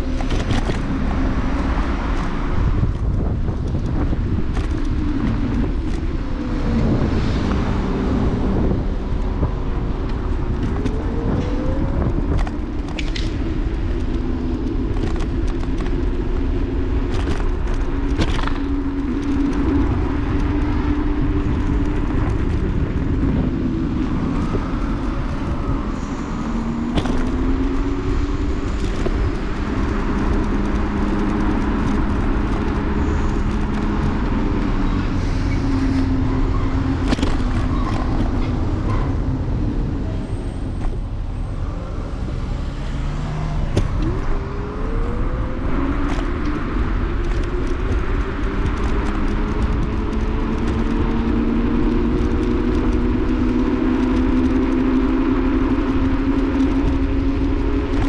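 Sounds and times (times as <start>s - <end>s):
road rumble: 0.0s - 58.0s
wind on microphone: 0.0s - 58.0s
electric motor whine: 40.9s - 46.0s.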